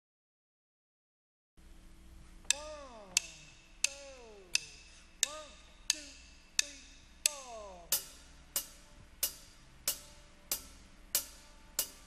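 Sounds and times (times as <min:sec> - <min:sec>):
faint falling pitched sounds: 0:02.4 - 0:10.8
drumsticks clicking together: 0:02.4 - 0:12.0.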